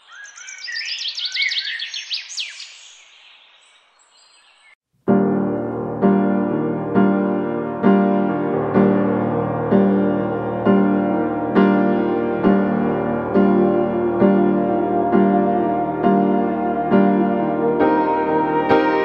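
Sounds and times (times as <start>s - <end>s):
soft piano music: 5.0s - 19.0s.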